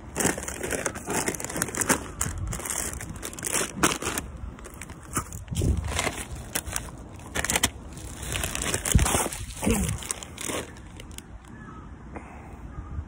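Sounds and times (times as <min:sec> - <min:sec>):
plastic crinkling and rustling: 0:00.0 - 0:11.5.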